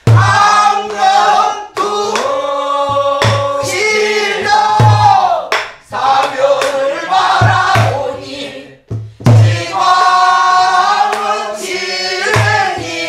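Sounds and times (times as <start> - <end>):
low drum thumps: 4.7 - 5.3, 7.4 - 8.1, 8.9 - 9.8.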